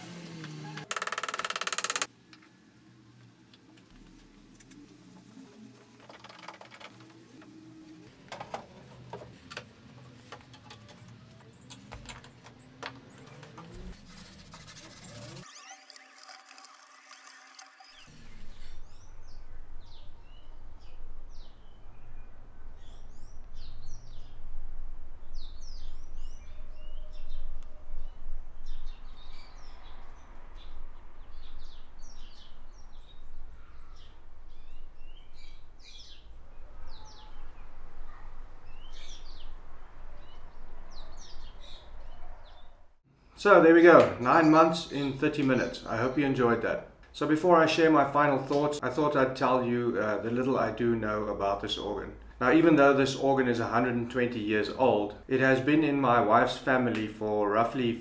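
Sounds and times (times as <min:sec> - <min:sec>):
small birds chirping: 0:17.8 - 0:24.5, 0:25.2 - 0:42.8
low outdoor rumble: 0:18.1 - 0:43.0.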